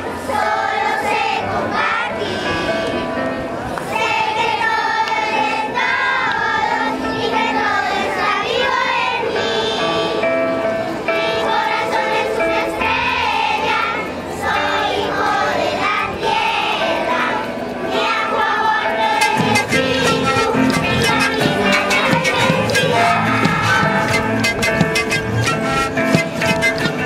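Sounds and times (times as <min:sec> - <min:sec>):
children singing: 0:00.0 - 0:03.0, 0:03.8 - 0:10.3, 0:11.0 - 0:27.0
drums and hand percussion: 0:19.1 - 0:27.0.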